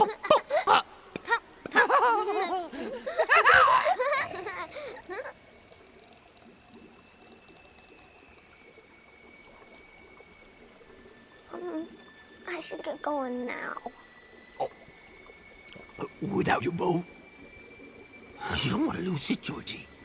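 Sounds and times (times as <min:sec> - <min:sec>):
rainwater trickling: 0:00.0 - 0:20.0.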